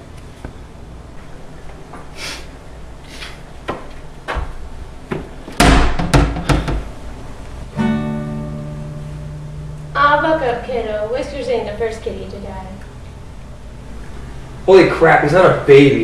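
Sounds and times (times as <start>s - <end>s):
loud thuds: 3.7s - 7.0s
acoustic guitar chord ringing: 7.6s - 14.6s.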